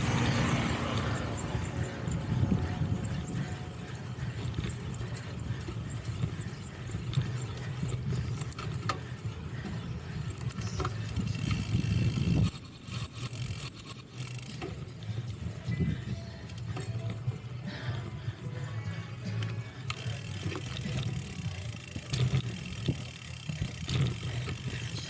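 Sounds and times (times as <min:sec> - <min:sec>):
wind on microphone: 0:00.0 - 0:05.1, 0:11.1 - 0:12.6
bike chain and frame rattling: 0:00.0 - 0:25.0.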